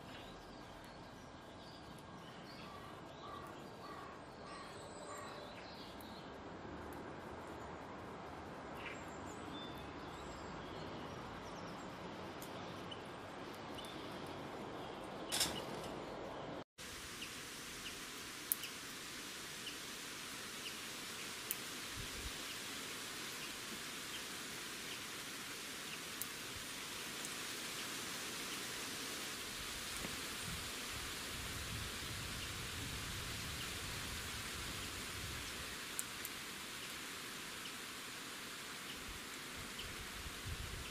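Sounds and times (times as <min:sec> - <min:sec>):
small birds chirping: 0:00.0 - 0:06.4, 0:08.8 - 0:16.6
steady background hiss: 0:00.0 - 0:40.9.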